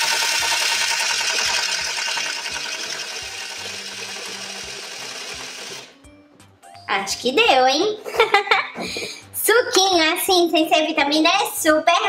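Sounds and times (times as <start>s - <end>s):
toy blender whirring: 0.0s - 6.0s.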